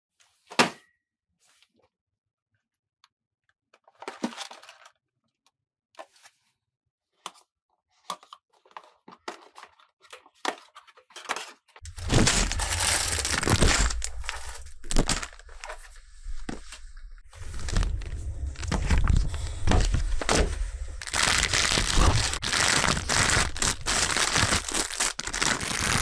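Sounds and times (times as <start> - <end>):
plastic bags rustling: 11.8 - 26.0
cardboard box tearing: 11.9 - 15.4, 21.0 - 26.0.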